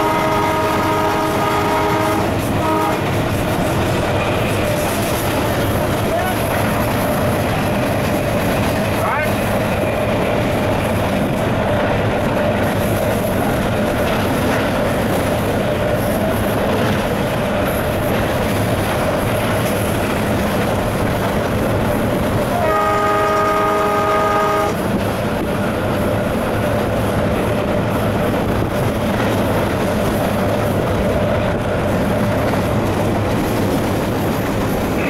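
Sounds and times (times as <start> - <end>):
locomotive horn: 0.0 - 3.2, 22.5 - 24.8
diesel locomotive running: 0.0 - 35.0.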